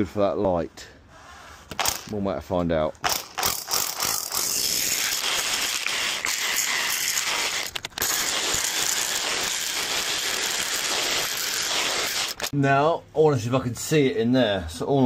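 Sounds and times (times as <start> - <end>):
hammer drill boring into brick: 3.0 - 12.5.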